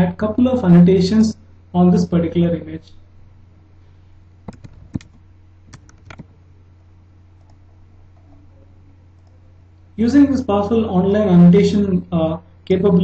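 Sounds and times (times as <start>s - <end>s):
low steady hum: 0.0s - 13.0s
keyboard keys clicking: 4.5s - 6.3s.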